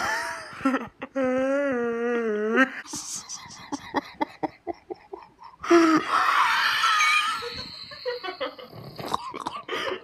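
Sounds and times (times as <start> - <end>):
woman laughing hard: 3.5 - 8.9.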